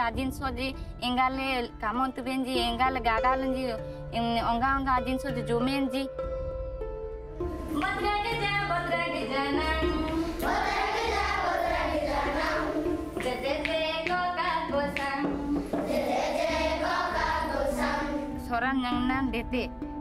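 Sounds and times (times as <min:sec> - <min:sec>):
children singing a folk song: 0:09.1 - 0:18.4.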